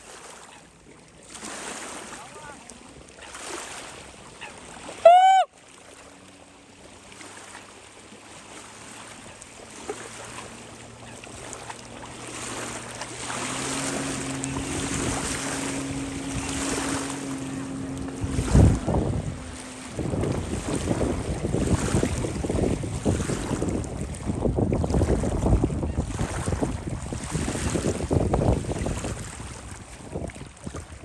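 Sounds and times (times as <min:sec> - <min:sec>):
jet ski engine: 0:00.0 - 0:31.0
loud short rising falling call: 0:05.0 - 0:05.5
wind buffeting microphone: 0:10.3 - 0:31.0.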